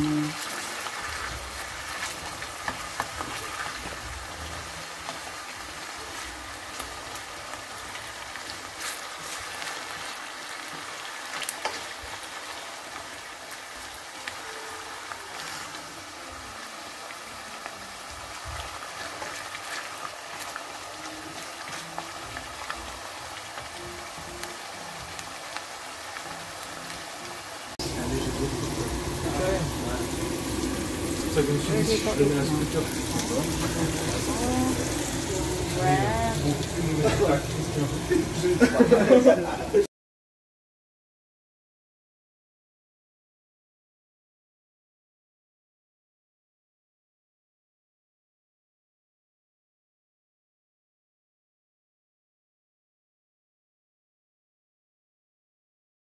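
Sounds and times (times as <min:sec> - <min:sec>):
potatoes sizzling in oil: 0:00.0 - 0:39.8
spatula stirring in a pan: 0:00.3 - 0:14.4, 0:18.0 - 0:26.3.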